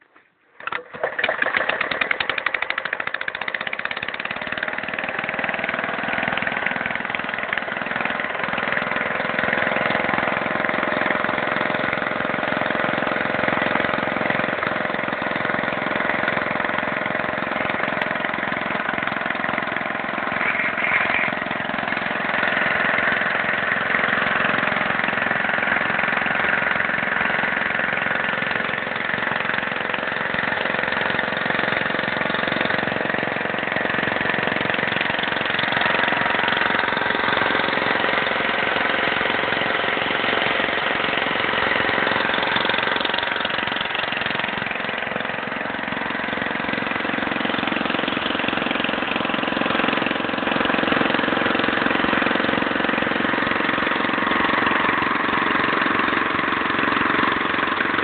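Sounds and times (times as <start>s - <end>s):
single-cylinder engine idling: 0.0s - 58.0s.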